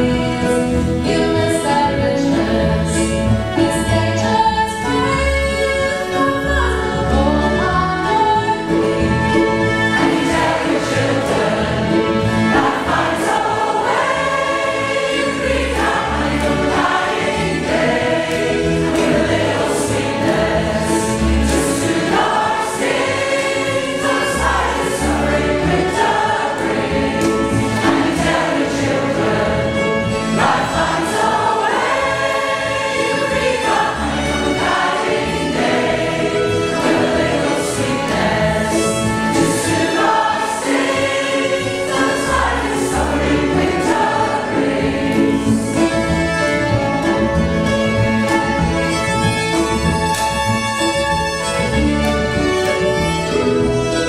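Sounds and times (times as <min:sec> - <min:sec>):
mixed choir singing: 0:00.0 - 0:47.7
double bass: 0:00.0 - 0:54.0
fiddles: 0:00.0 - 0:54.0.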